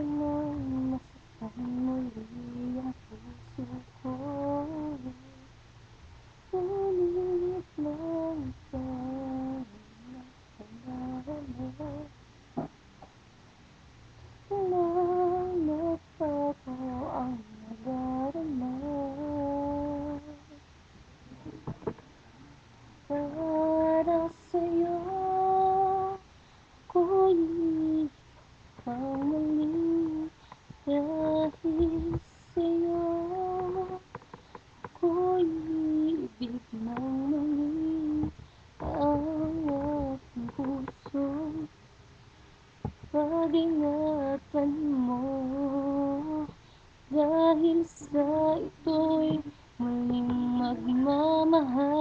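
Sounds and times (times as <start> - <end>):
woman singing unaccompanied: 0.0 - 5.6, 6.4 - 12.8, 14.4 - 20.7, 23.0 - 41.8, 42.8 - 52.0
breaths: 26.3 - 26.8, 30.4 - 30.7, 34.3 - 34.8, 38.4 - 38.8, 46.6 - 47.0
faint clicks: 27.7 - 32.9, 33.5 - 41.6
person humming: 43.2 - 52.0.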